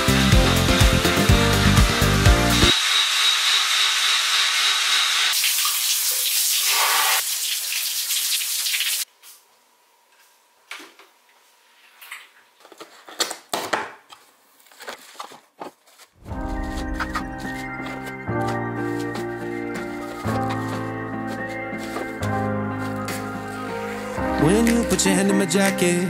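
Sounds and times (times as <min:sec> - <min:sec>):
bristles hissing on wet tile: 0:05.3 - 0:09.1.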